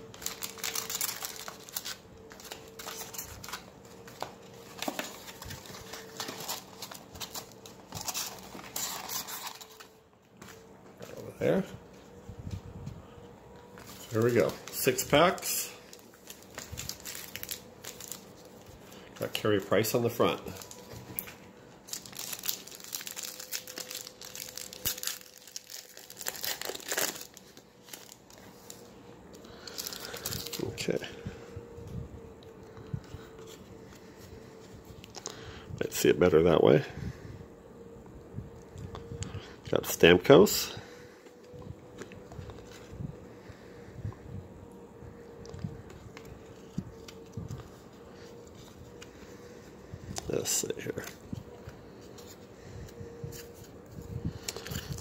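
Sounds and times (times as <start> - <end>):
foil packs crinkling: 0.0 - 10.0, 13.8 - 31.0, 45.9 - 55.0.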